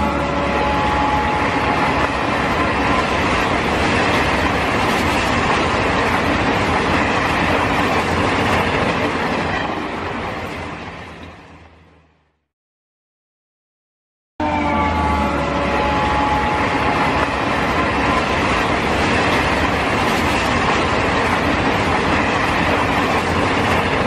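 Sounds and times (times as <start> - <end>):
train horn blast: 0.0 - 2.4, 14.4 - 18.2
passenger train passing at speed: 0.0 - 12.5, 14.4 - 24.0.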